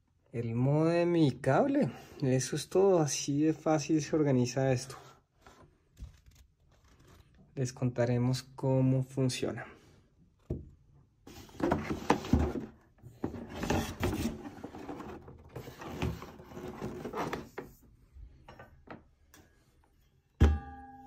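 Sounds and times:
cardboard box rustling and scraping: 11.3s - 17.7s.

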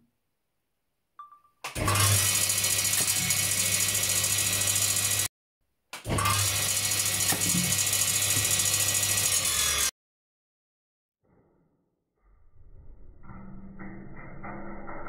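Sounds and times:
circular saw running: 1.9s - 5.3s, 6.2s - 9.9s.

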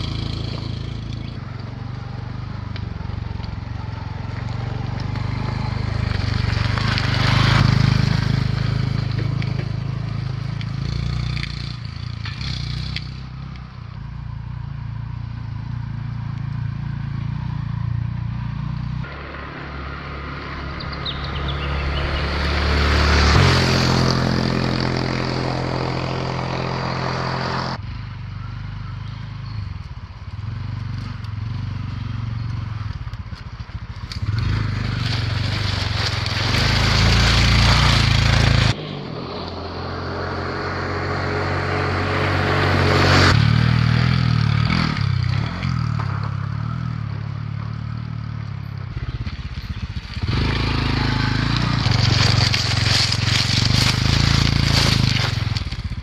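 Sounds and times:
motorbike engine passing: 0.0s - 13.5s, 14.7s - 56.0s
tyres crunching over gravel: 2.8s - 12.9s, 32.5s - 38.8s, 49.0s - 56.0s.

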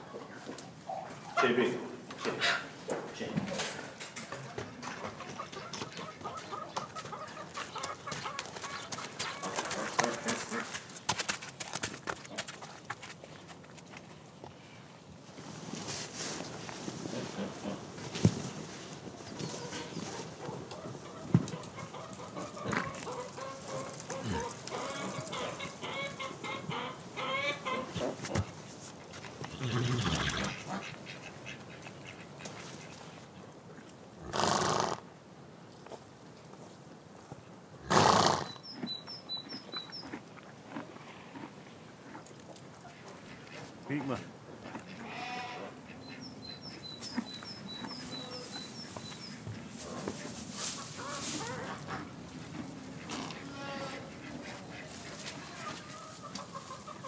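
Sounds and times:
poultry calling: 4.8s - 10.8s, 19.4s - 28.2s, 29.4s - 33.0s, 42.8s - 57.0s
dry hay rustling: 15.2s - 26.4s, 47.0s - 57.0s
fowl calls: 19.6s - 28.0s, 53.0s - 57.0s.

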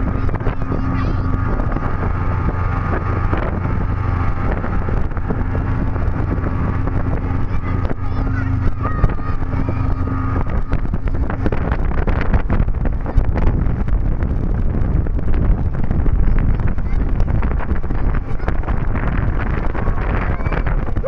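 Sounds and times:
hull hitting waves: 0.0s - 21.0s
speedboat engine drone: 0.0s - 21.0s
wind buffeting microphone: 0.0s - 21.0s.

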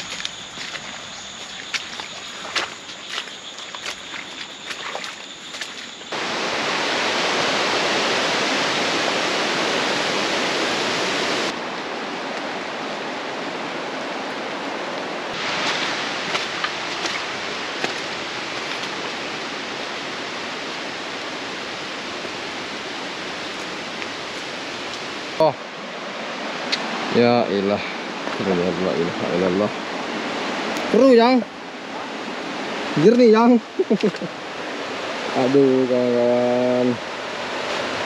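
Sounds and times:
footsteps on muddy trail: 0.0s - 6.2s, 15.4s - 19.3s, 23.2s - 25.1s
rushing water: 0.0s - 38.0s.

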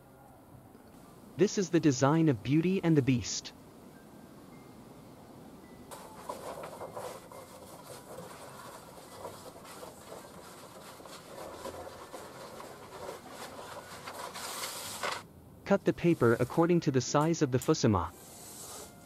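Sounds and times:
paper rustling and crackling: 5.9s - 15.2s.

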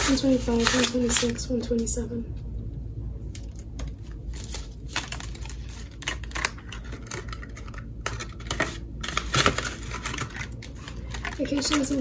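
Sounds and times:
banknotes rustling: 0.0s - 1.4s, 4.3s - 12.0s
plastic binder pages flipping: 0.0s - 1.4s, 3.4s - 12.0s.

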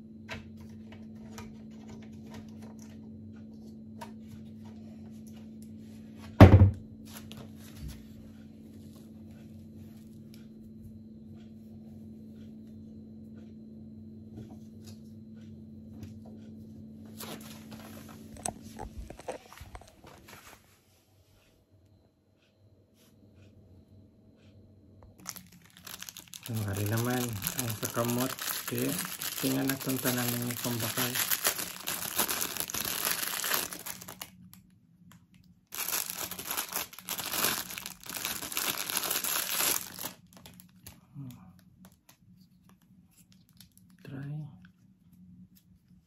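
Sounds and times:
steady low hum: 0.0s - 46.0s
loud thump: 6.4s - 6.8s.

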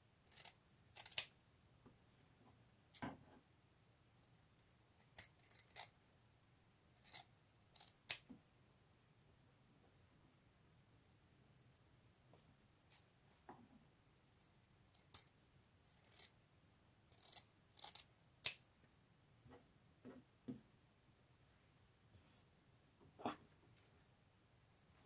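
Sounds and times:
scissors snipping fabric: 0.3s - 1.3s.

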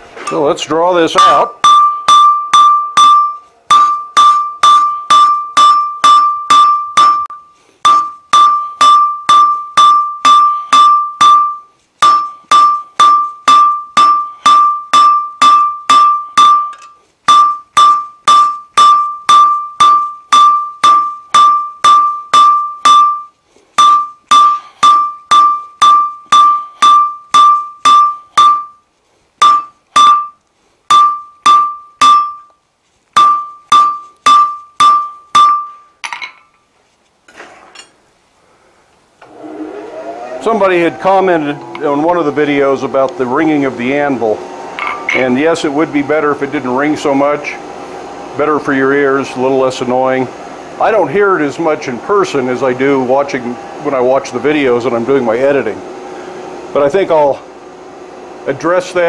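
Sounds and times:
anvil ringing: 1.1s - 28.8s, 29.4s - 32.5s, 33.2s - 36.5s, 40.3s - 45.4s
hammer blows on anvil: 1.1s - 28.8s, 29.4s - 32.5s, 33.2s - 36.4s, 40.2s - 45.5s.

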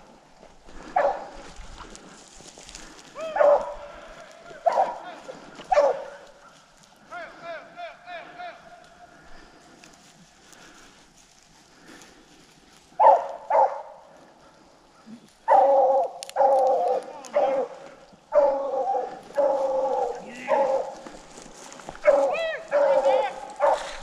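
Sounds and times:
hounds baying: 0.7s - 24.0s
dog yelps: 3.2s - 3.8s, 5.7s - 6.2s, 13.0s - 13.9s, 15.5s - 17.7s, 18.3s - 21.0s.

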